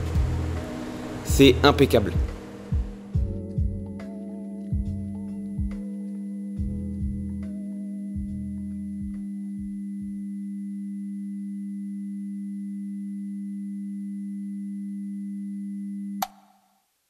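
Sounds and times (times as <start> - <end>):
music: 0.0 - 10.2
electronic hum of low tones: 0.0 - 16.3.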